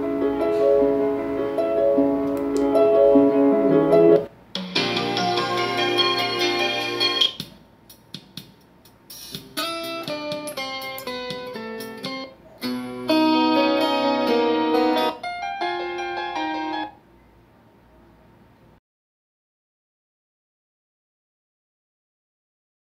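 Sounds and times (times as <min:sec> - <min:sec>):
guitar music through a speaker: 0:00.0 - 0:08.1, 0:08.9 - 0:17.0.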